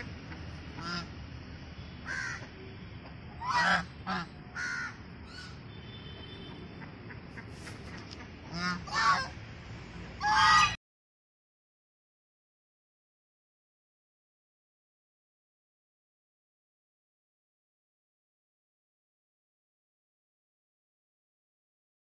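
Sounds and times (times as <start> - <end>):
geese honking: 0.0 - 1.1, 3.4 - 5.6, 6.8 - 9.4, 10.2 - 10.8.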